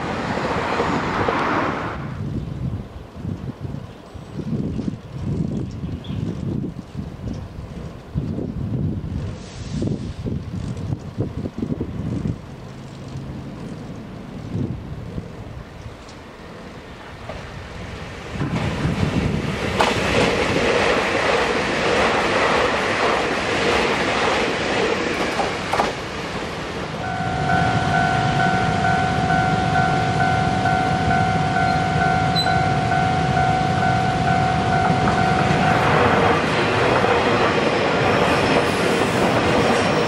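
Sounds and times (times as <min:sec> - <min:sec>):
train rumbling on rails: 0:00.0 - 0:40.0
rail clacks: 0:17.0 - 0:40.0
level-crossing warning bell: 0:27.0 - 0:36.4.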